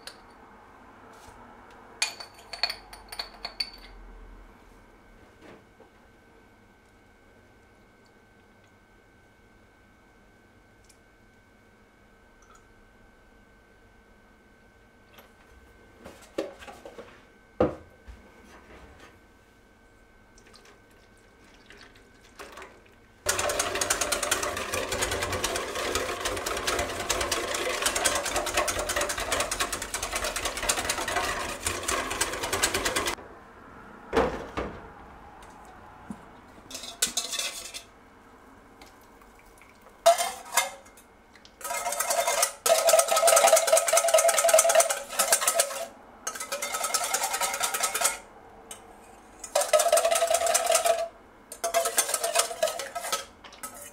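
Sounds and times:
whisk rattling in metal bowl: 0:23.3 - 0:33.2, 0:40.1 - 0:41.0, 0:41.6 - 0:48.3, 0:49.4 - 0:53.9
whisk scraping bowl: 0:23.3 - 0:33.2, 0:40.1 - 0:40.9, 0:41.6 - 0:48.3, 0:49.0 - 0:53.9.

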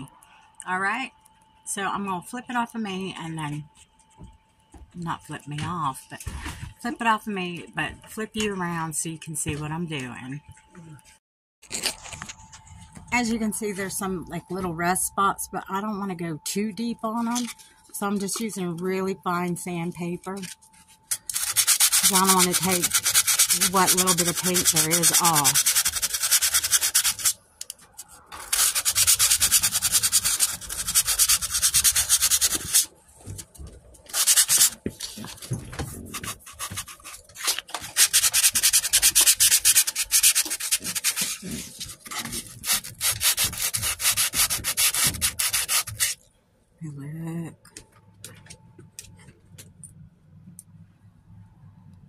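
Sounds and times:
sandpaper rubbing on metal: 0:21.1 - 0:27.4, 0:28.4 - 0:32.9, 0:34.1 - 0:34.8, 0:36.1 - 0:46.2.

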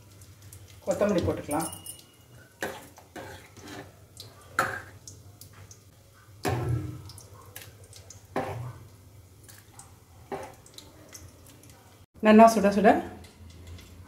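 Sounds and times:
wet food plopping and dripping: 0:00.0 - 0:12.1
metal utensils clinking: 0:00.9 - 0:04.0.

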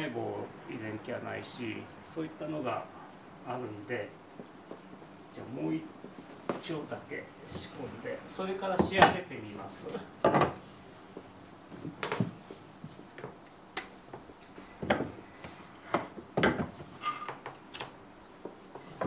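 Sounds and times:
wooden tools knocking on workbench: 0:10.2 - 0:10.6, 0:14.8 - 0:15.2, 0:15.9 - 0:17.6.

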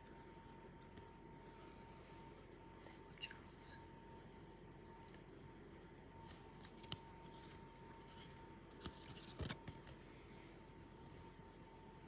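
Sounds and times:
cards and packaging rustling: 0:06.2 - 0:10.0.

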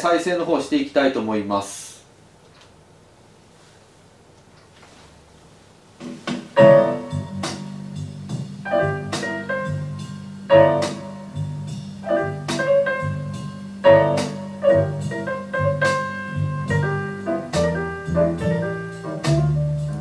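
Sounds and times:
jazz piano chords: 0:06.0 - 0:20.0
bass line: 0:06.6 - 0:20.0.

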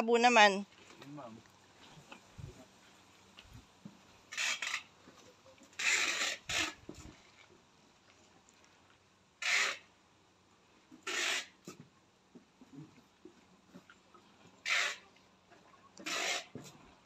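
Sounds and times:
hands scraping soil: 0:04.2 - 0:07.4, 0:14.6 - 0:15.1, 0:16.0 - 0:16.8.

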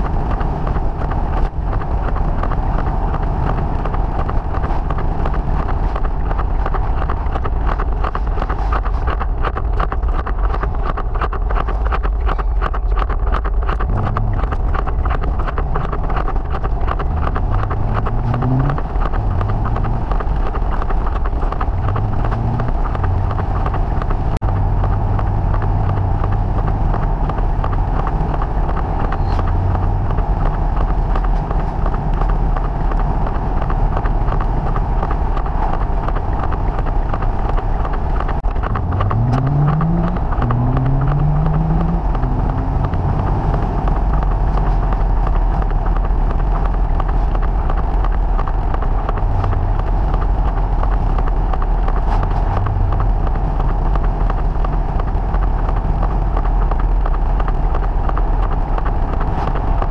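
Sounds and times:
car engine running: 0:00.0 - 0:59.9
wind noise on microphone: 0:00.0 - 0:59.9.

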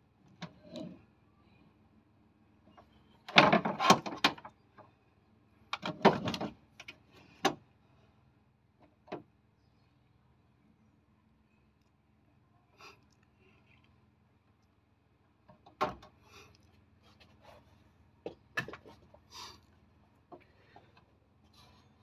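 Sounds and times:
metal parts clunking and rattling: 0:03.3 - 0:04.5, 0:05.8 - 0:06.6.

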